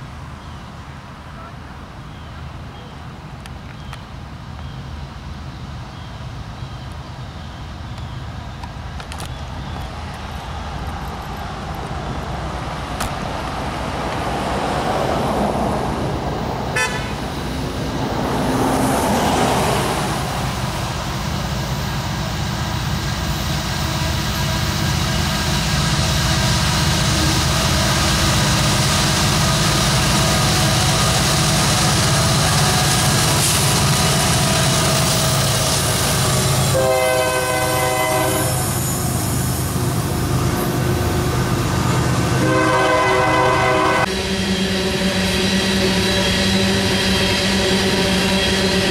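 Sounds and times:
diesel locomotive engines running: 0:00.0 - 0:48.9
freight cars rolling past: 0:02.1 - 0:48.9
car passing: 0:09.5 - 0:21.2
train horn: 0:16.7 - 0:17.3, 0:36.6 - 0:38.8, 0:42.4 - 0:48.9.

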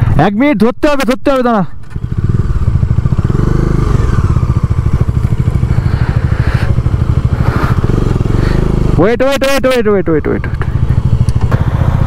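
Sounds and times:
motorcycle engine under load: 0:01.4 - 0:12.0
person talking: 0:09.0 - 0:10.6.

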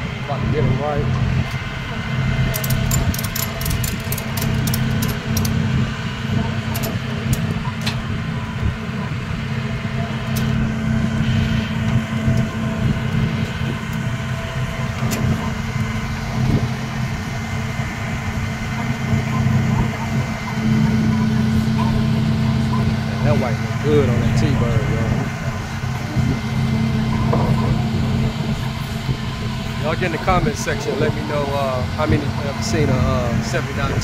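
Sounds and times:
vehicle engine idling: 0:00.0 - 0:34.0
light clicking and rattling: 0:02.5 - 0:05.6.

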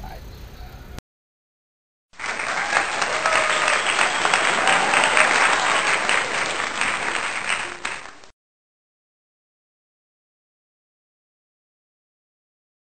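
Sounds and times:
crowd applause: 0:02.2 - 0:08.3.

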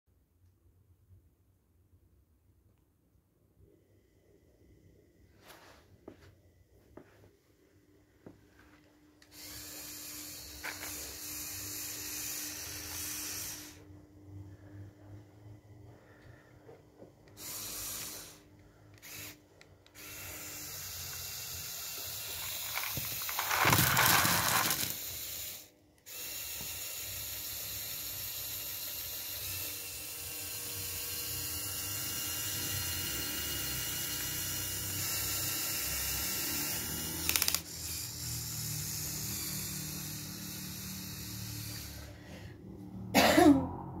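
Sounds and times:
small motors and gears whirring: 0:09.2 - 0:15.2, 0:15.9 - 0:43.0
plastic pieces clattering onto carpet: 0:22.4 - 0:25.0.

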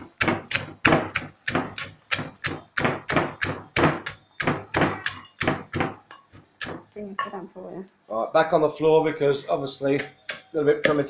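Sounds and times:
wooden pestle pounding in mortar: 0:00.0 - 0:07.3, 0:09.9 - 0:11.0.

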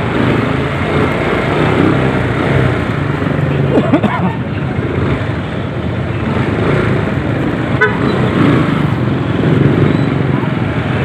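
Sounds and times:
motorcycle engine and wind rumble: 0:04.3 - 0:11.0
horn toot: 0:07.8 - 0:08.4.

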